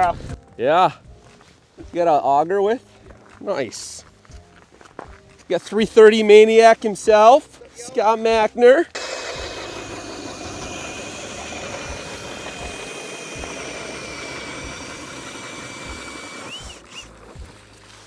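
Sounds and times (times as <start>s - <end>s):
ice auger motor whine: 8.9s - 17.1s
auger bit grinding ice: 8.9s - 17.5s.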